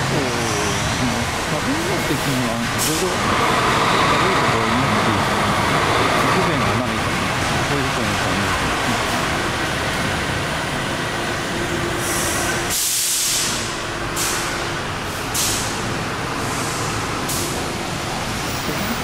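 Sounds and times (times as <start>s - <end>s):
buses and cars running: 0.0s - 19.0s
bus air brakes hissing: 11.9s - 17.8s.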